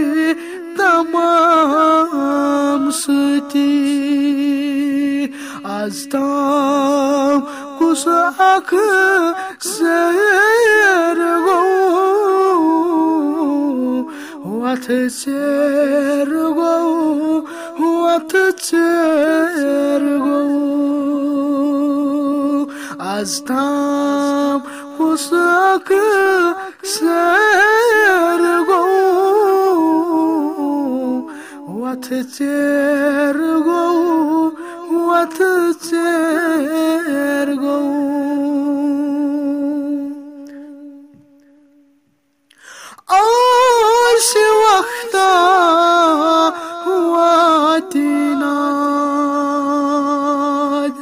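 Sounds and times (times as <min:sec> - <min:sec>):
man singing unaccompanied: 0:00.0 - 0:41.9, 0:43.0 - 0:51.0
breath: 0:00.4 - 0:00.6, 0:05.3 - 0:05.7, 0:07.5 - 0:07.8, 0:09.4 - 0:09.6, 0:14.1 - 0:14.4, 0:17.5 - 0:17.8, 0:22.7 - 0:23.0, 0:24.6 - 0:24.9, 0:31.3 - 0:31.6, 0:34.6 - 0:34.9, 0:42.5 - 0:43.1, 0:46.6 - 0:46.8.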